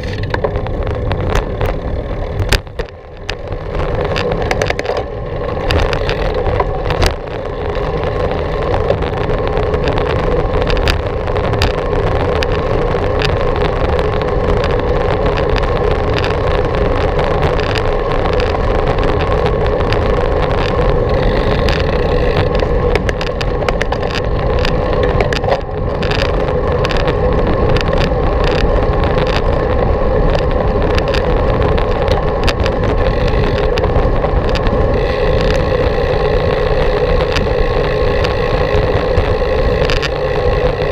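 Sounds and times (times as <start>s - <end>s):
bicycle tyre rumble: 0.0s - 40.9s
small clicks and rattles: 0.0s - 40.9s
wind: 0.0s - 40.9s.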